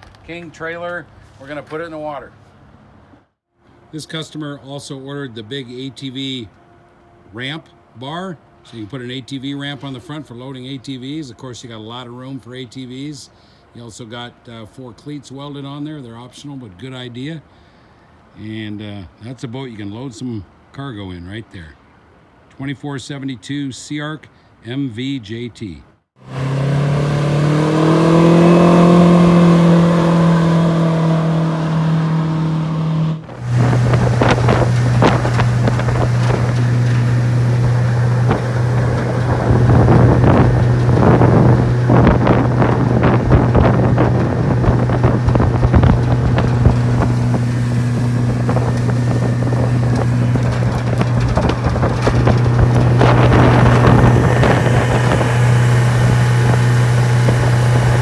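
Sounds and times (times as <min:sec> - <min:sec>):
outboard boat engine running: 0:26.2 - 0:58.0
wind on microphone: 0:27.2 - 0:58.0.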